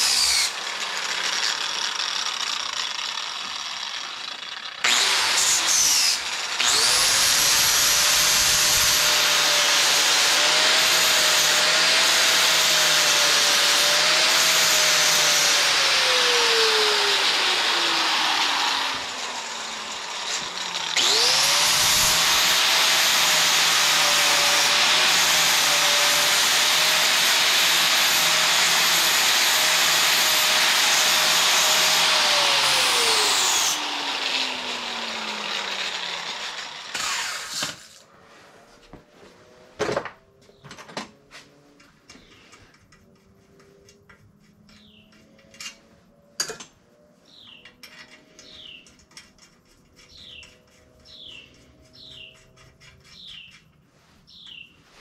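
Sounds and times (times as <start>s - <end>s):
angle grinder grinding metal: 0.0s - 38.1s.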